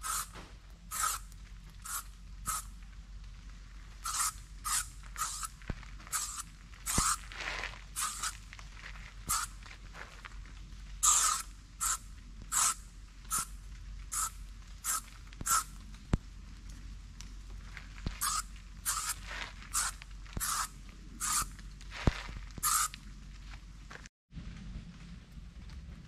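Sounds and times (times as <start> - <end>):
footsteps walking: 5.0 - 10.9, 17.3 - 20.6, 21.4 - 24.1.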